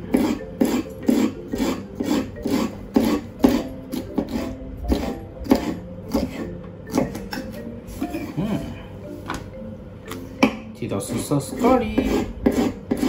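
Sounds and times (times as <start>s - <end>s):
knife slicing pepper on wooden board: 0.1s - 7.3s, 12.0s - 13.0s.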